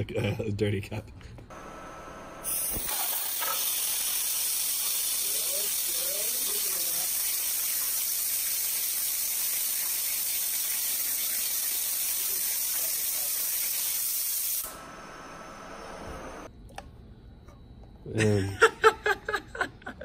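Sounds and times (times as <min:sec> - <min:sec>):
high-pressure water jet hissing: 0:02.5 - 0:14.7.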